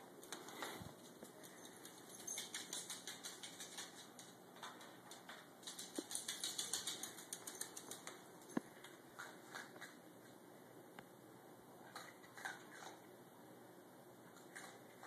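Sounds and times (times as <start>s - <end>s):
dog claws clicking on hard floor: 0.2s - 10.0s.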